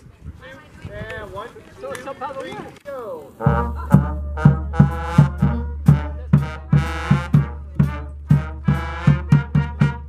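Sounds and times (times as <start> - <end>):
bass drum beat: 3.4 - 10.0
brass band playing: 3.4 - 10.0.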